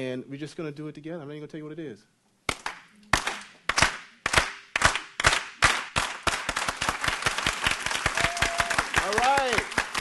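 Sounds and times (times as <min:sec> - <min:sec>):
group hand clapping: 0:02.5 - 0:10.0.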